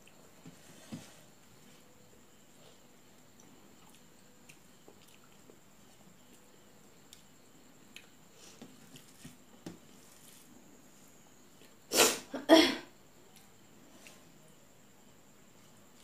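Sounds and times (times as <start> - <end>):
person chewing: 3.4 - 5.6, 7.9 - 8.2.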